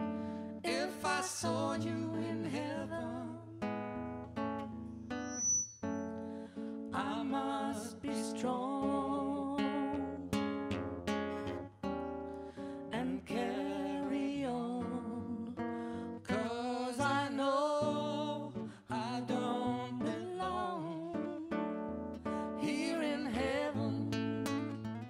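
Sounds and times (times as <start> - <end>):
acoustic guitar strumming: 3.6 - 7.0.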